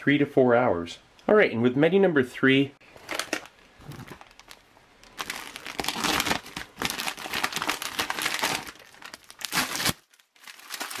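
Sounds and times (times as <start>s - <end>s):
plastic pouch tearing and crinkling: 3.0s - 11.0s.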